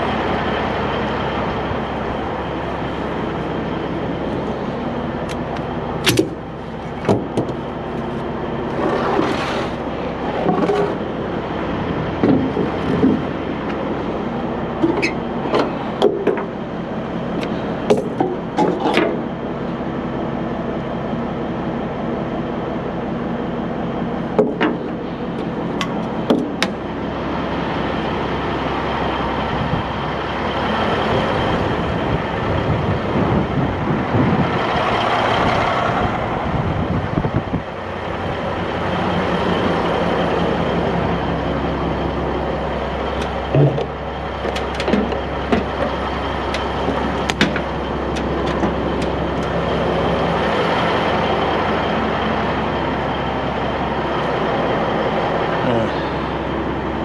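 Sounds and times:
diesel truck engine running: 0.0 - 57.0
sharp knocks and rattles: 12.2 - 13.4.

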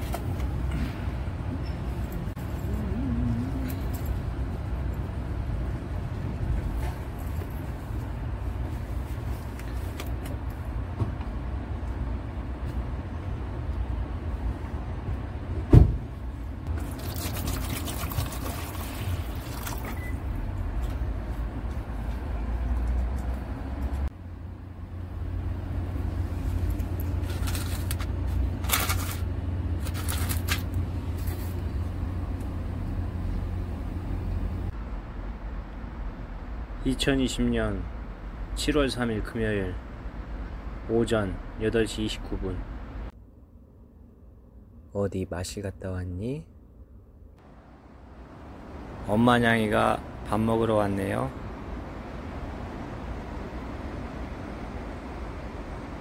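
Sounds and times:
water pouring into plastic tray: 16.8 - 19.8.

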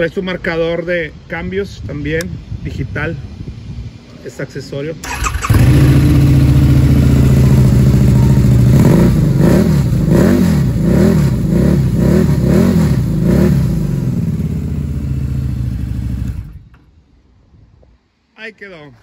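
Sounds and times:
motorcycle throttle blips: 5.0 - 16.9
motorcycle engine idling: 5.1 - 12.0, 12.6 - 16.9.

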